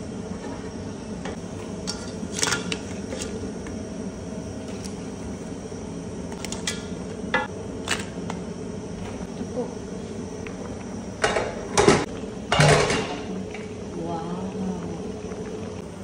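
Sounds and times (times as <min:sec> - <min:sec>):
sizzling hum: 0:00.0 - 0:16.0.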